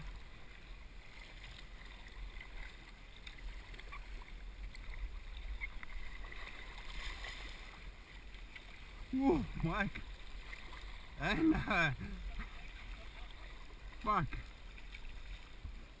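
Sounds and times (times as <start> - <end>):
paddle splashes: 0.0 - 16.0
river water rushing and lapping: 0.0 - 16.0.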